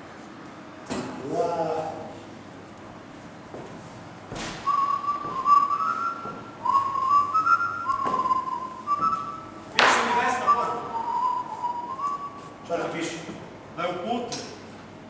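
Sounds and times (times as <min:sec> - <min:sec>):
person whistling a tune: 0:04.6 - 0:12.6.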